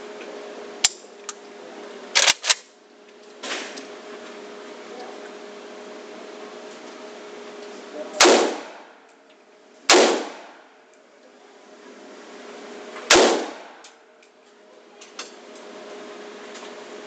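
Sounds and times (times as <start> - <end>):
rifle shots echoing indoors: 8.2 - 8.9, 9.9 - 10.6, 13.1 - 13.9.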